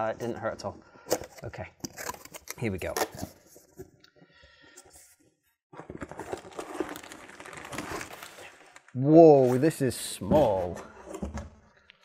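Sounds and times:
cardboard and plastic rustling: 5.0s - 8.9s.

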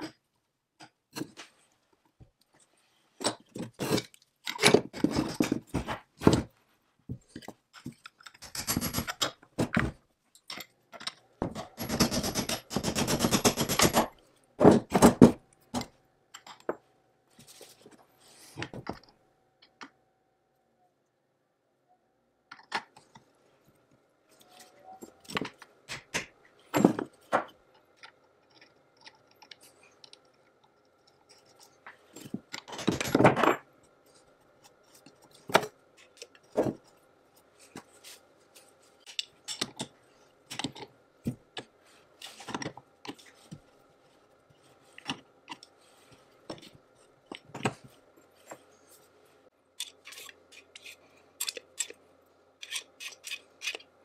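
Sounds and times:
metal parts clinking and knocking: 7.8s - 14.1s, 31.2s - 33.7s.

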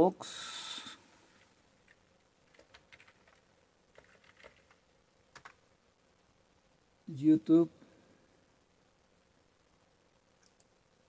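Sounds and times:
typing on a computer keyboard: 1.9s - 5.6s.

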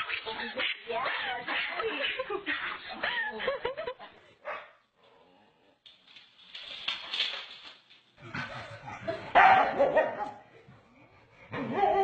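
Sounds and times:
dog barking and yipping: 9.3s - 10.3s.

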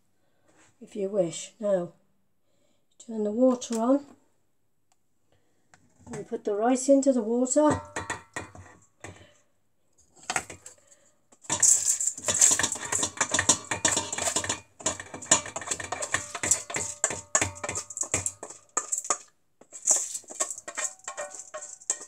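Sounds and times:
pan and utensil clatter: 7.7s - 9.3s, 10.2s - 10.8s, 11.4s - 22.0s.

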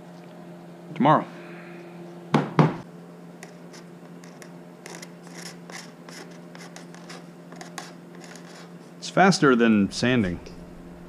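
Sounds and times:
faint steady hum: 0.0s - 11.0s
knife scraping wood: 3.4s - 8.8s.

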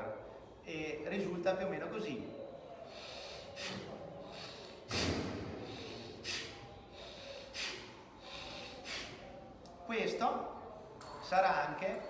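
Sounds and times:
man breathing hard through nose: 2.8s - 9.4s.

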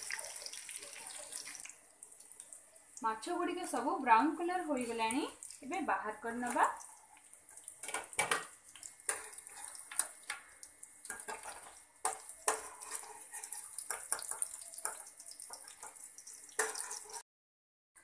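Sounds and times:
fish sizzling in hot oil: 0.0s - 17.2s
metal spatula scraping pan: 11.1s - 14.4s, 16.6s - 17.2s.

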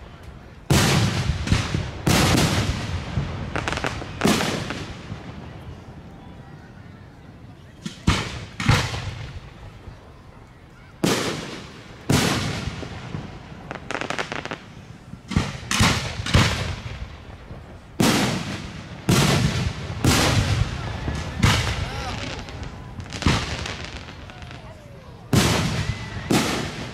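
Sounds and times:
firework crackling: 0.0s - 26.9s
firework shells booming: 11.0s - 24.7s, 25.3s - 26.9s.

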